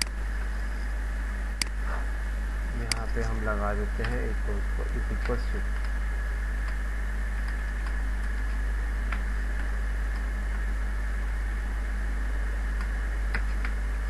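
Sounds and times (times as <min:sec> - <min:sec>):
low hum and hiss: 0:00.0 - 0:14.0
thin high whine: 0:00.0 - 0:14.0.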